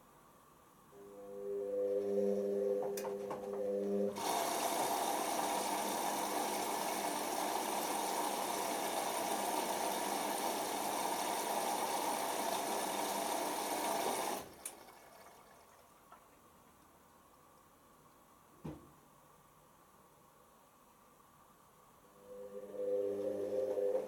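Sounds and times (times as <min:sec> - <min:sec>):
water filling washing machine drum: 0:04.2 - 0:16.3.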